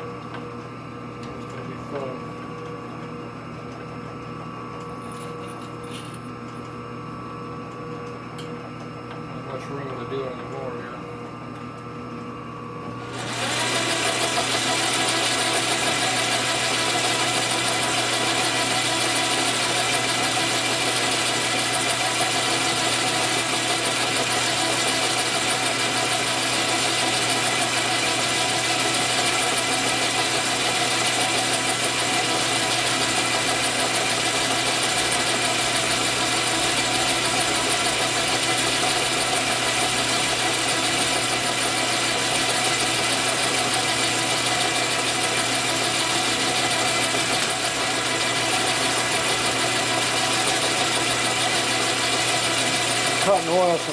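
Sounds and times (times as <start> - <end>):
metal lathe running: 13.0 - 53.9.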